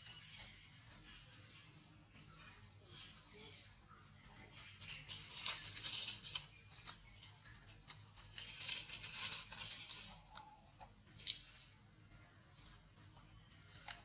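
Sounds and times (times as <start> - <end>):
dry leaves rustling and crackling: 4.8 - 7.0, 8.2 - 10.2.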